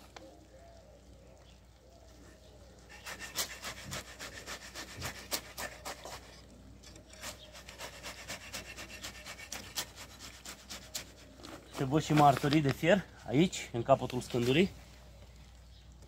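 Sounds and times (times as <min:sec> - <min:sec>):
wooden board scraping wet concrete: 0:02.9 - 0:14.8.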